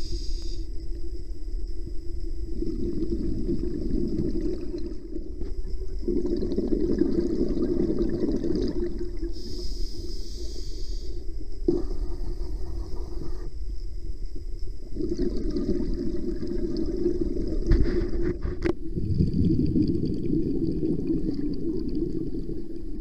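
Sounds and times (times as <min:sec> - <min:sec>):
regulator inhale hiss: 0:00.0 - 0:01.0, 0:09.2 - 0:12.0
steady low hum: 0:00.0 - 0:23.0
exhaled bubbles gurgling: 0:02.3 - 0:12.4, 0:14.8 - 0:23.0.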